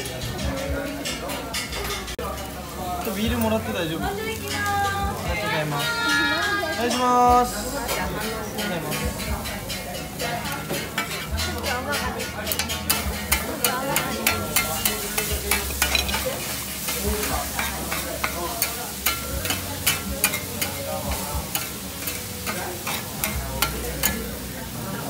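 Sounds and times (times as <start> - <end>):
batter sizzling on griddle: 0.0 - 25.0
metal spatulas scraping griddle: 7.9 - 24.4.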